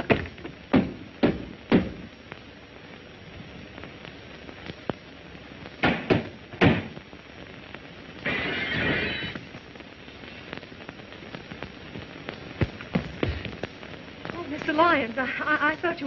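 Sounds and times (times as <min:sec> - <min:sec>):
heavy thuds: 0:12.6 - 0:13.7.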